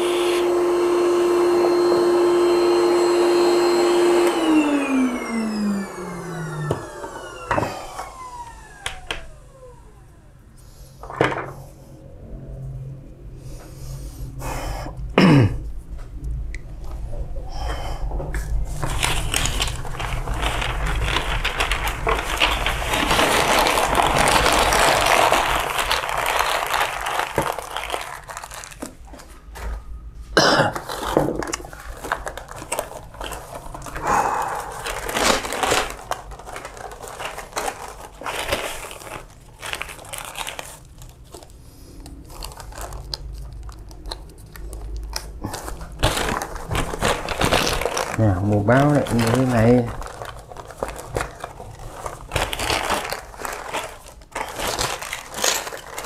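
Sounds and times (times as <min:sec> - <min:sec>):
crinkling and rustling handling: 0:10.9 - 0:11.8, 0:18.2 - 0:56.0.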